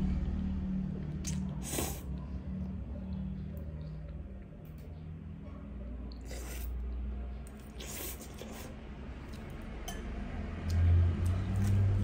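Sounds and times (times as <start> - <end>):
person slurping noodles: 1.3 - 2.1, 6.2 - 6.7, 7.7 - 8.8.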